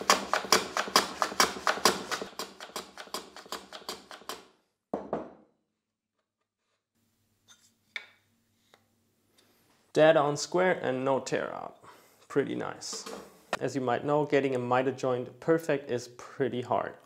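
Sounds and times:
hand plane shaving wood: 0.0s - 4.5s.

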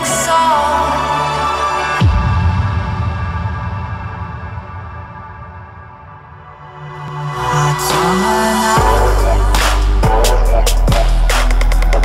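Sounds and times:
trap music: 5.8s - 12.0s
deep sustained bass: 6.3s - 12.0s
snare and hi-hat hits: 7.9s - 12.0s.

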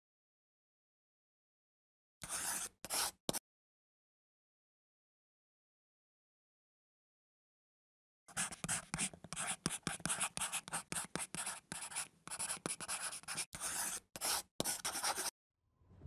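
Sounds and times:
pencil scratching on paper: 2.2s - 3.4s, 8.3s - 15.3s.

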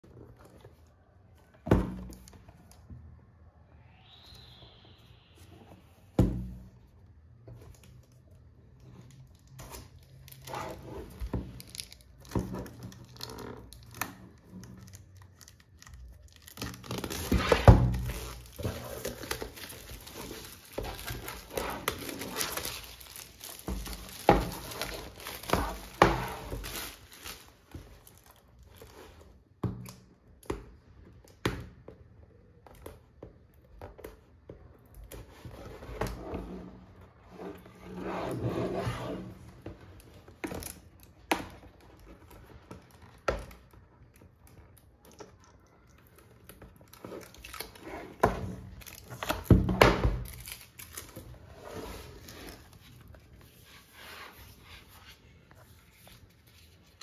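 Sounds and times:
plastic wrapping crinkling: 7.7s - 29.4s, 39.3s - 57.0s.

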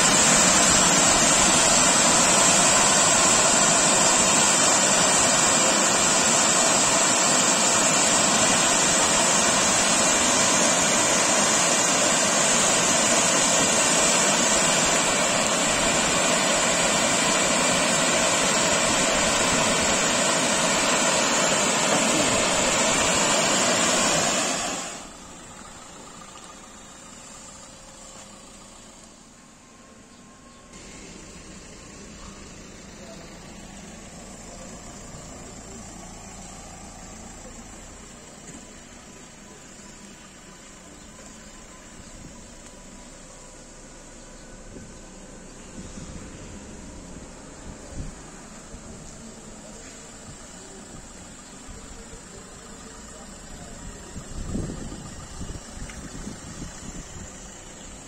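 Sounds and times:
blower fans rushing air: 0.0s - 29.6s, 42.0s - 58.0s.

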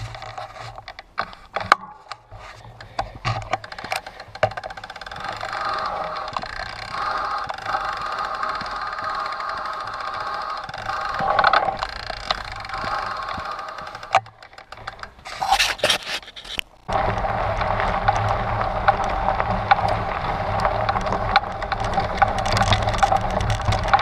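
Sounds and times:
bike knocks and rattles: 0.0s - 24.0s
rapid ticking buzz: 2.8s - 15.1s, 16.7s - 24.0s.

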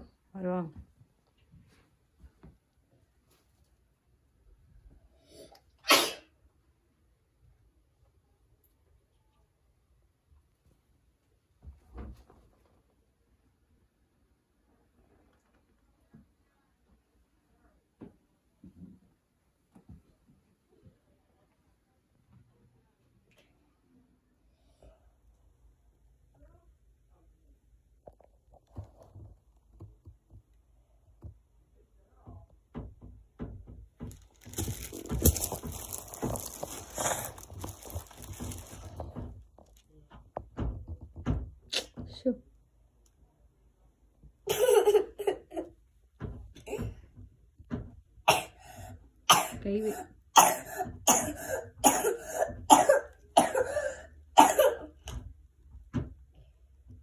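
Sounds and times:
child coughing: 5.8s - 6.3s, 44.5s - 45.6s, 46.6s - 47.0s, 48.3s - 48.6s, 49.3s - 55.0s.

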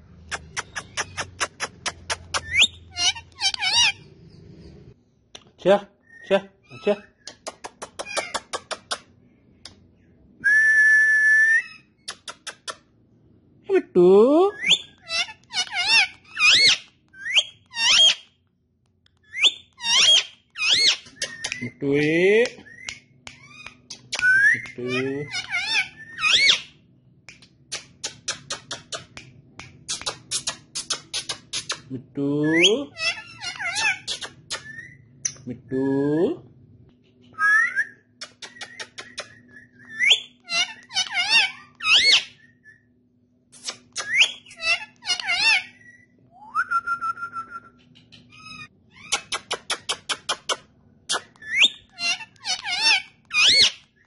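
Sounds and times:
parrot clicks and chirps: 0.2s - 3.8s, 7.2s - 9.8s, 12.0s - 12.9s, 18.9s - 21.8s, 22.7s - 24.8s, 27.3s - 31.9s, 38.2s - 42.2s, 43.6s - 45.6s, 47.8s - 54.0s
parakeet sharp clicks: 27.3s - 31.8s.

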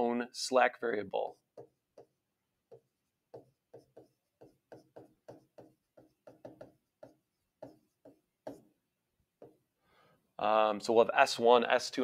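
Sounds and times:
stylus tapping and scratching: 1.2s - 9.7s.

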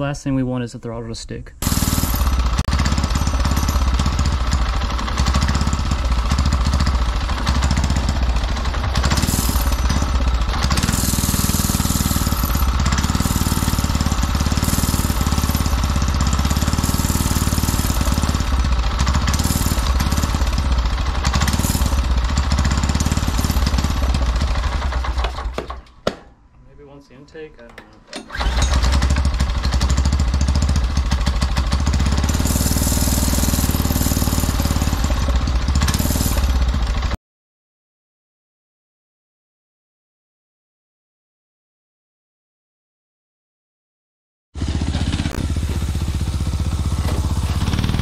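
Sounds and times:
small single-cylinder engine running: 1.6s - 25.8s, 28.1s - 37.2s, 44.6s - 48.0s.

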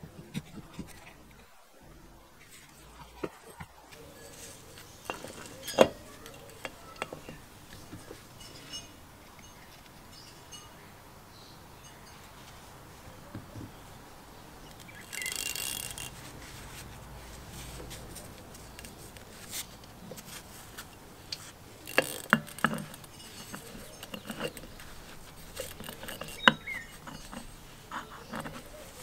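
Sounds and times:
gloved hands rubbing: 14.9s - 22.2s, 23.0s - 29.0s.

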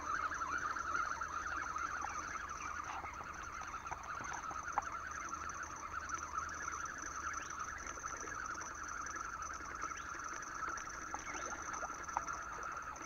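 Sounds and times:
insect chorus: 0.0s - 13.0s.

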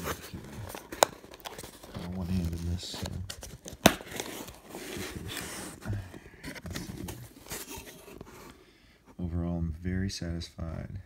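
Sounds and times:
cardboard box scraping and rustling: 0.0s - 8.6s.

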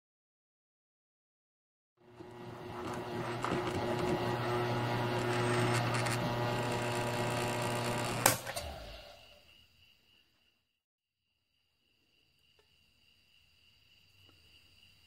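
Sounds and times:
drill press boring through metal: 2.0s - 8.9s.

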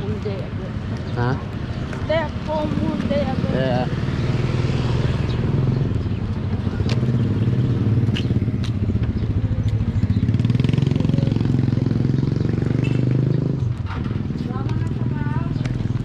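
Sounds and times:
motorcycle engine idling: 5.6s - 12.6s.

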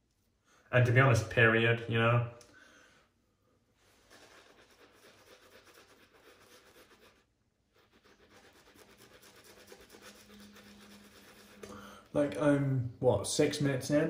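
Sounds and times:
shaving brush swishing in lather: 3.9s - 12.3s.

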